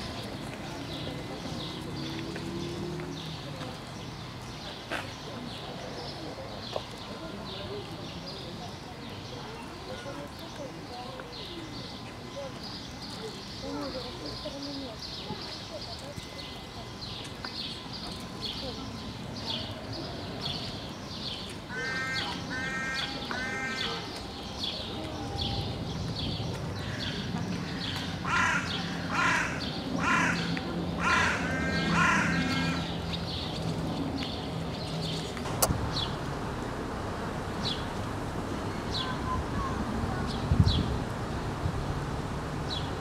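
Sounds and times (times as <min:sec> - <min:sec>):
harsh cawing calls: 0:21.7 - 0:23.9, 0:26.8 - 0:33.0.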